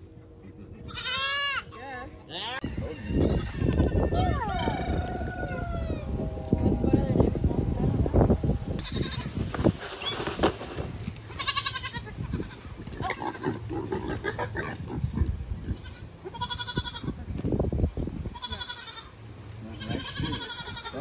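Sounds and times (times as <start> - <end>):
young goat bleating: 0.9 - 1.8, 3.1 - 4.2, 8.8 - 9.4, 11.2 - 13.4, 15.7 - 17.2, 18.3 - 21.0.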